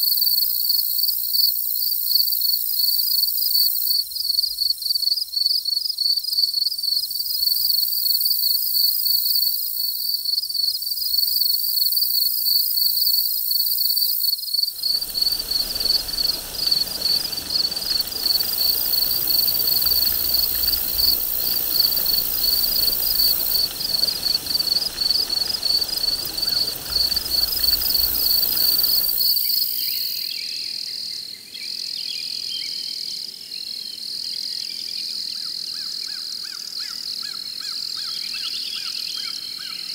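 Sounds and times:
insects chirping: 0.0 - 30.5
faint high hiss: 14.7 - 30.3
broad rushing noise: 14.8 - 29.4.

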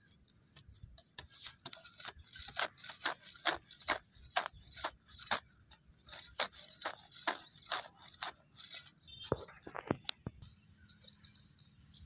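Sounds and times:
metal blade scraping soil: 0.6 - 9.8.

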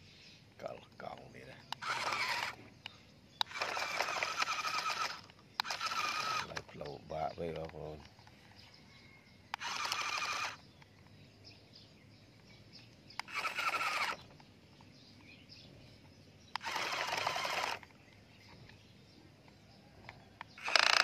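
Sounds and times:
toy truck wheels whirring: 1.8 - 2.6, 3.4 - 6.8, 9.5 - 10.6, 13.2 - 14.4, 16.5 - 18.0, 20.5 - 21.0.

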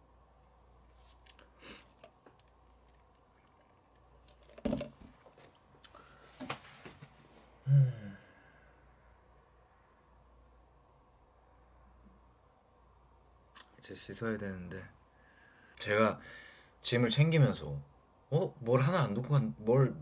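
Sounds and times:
person humming: 7.6 - 8.4.

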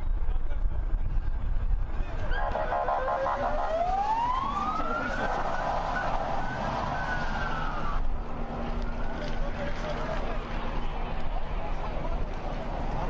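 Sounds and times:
emergency siren wailing: 2.2 - 10.3.

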